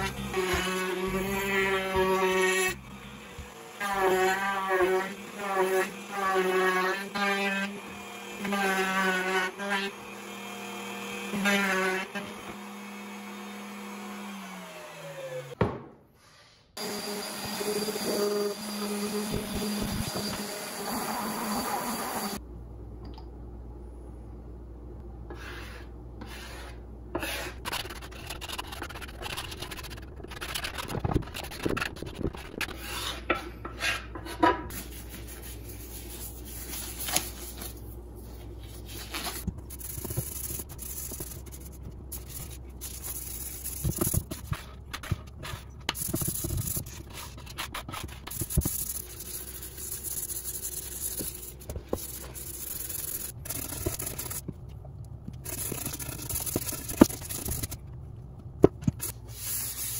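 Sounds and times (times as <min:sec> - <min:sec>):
gloved hands rubbing wood: 0:25.4 - 0:33.2, 0:34.8 - 0:54.5, 0:55.4 - 0:57.8.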